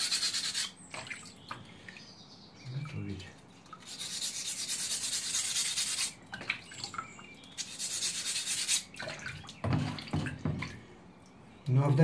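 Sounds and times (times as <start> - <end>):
gritty rubbing on sharpening stone: 0.0 - 0.8, 3.8 - 6.2, 7.6 - 8.9.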